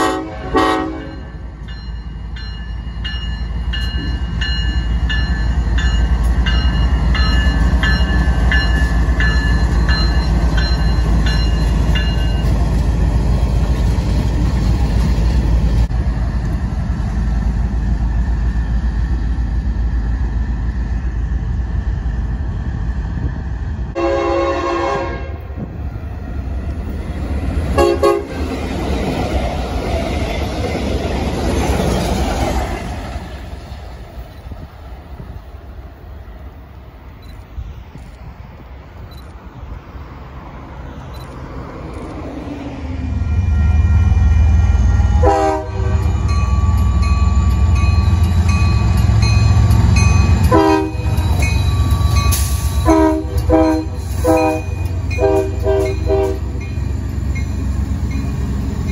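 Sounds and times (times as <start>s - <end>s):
locomotive horn: 0.0s - 1.4s, 24.0s - 25.6s, 27.8s - 28.4s, 43.3s - 46.4s, 50.5s - 51.2s, 52.1s - 56.6s
diesel locomotives rumbling: 0.0s - 58.9s
bell ringing: 1.1s - 12.6s.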